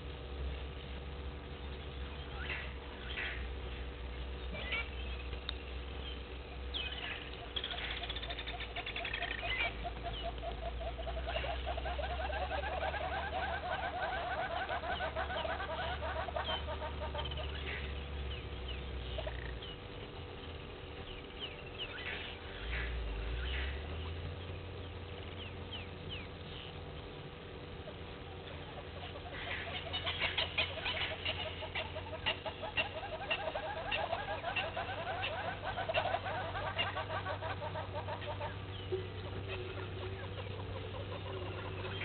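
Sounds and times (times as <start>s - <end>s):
birds calling: 0.0s - 42.0s
rapid low pulsed bird notes: 0.0s - 42.0s
steady low hum: 0.0s - 42.0s
buzzy high bird trill: 6.0s - 19.8s.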